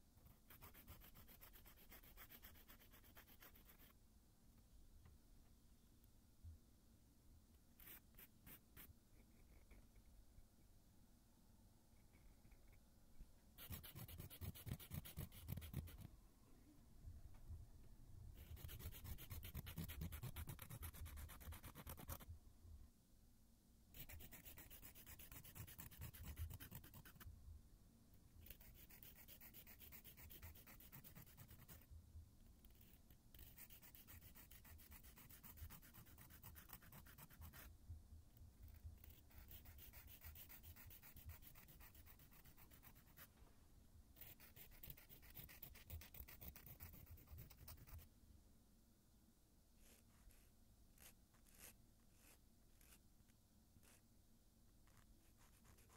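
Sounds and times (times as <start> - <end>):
nail file rasping: 0.2 - 3.9, 13.6 - 16.1, 18.4 - 22.2, 24.0 - 27.2, 28.4 - 31.8, 32.6 - 37.7, 39.0 - 43.3, 44.2 - 48.0.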